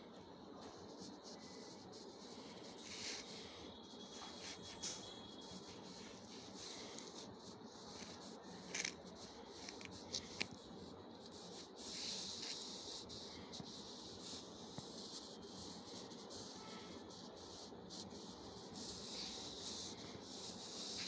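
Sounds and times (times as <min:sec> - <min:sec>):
magnet rubbing over paper: 0:00.6 - 0:21.0
magnet scraping: 0:07.9 - 0:10.6.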